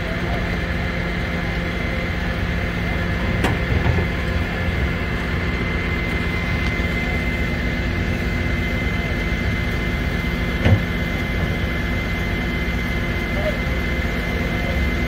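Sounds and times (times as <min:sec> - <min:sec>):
truck engine running with whine: 0:00.0 - 0:15.0.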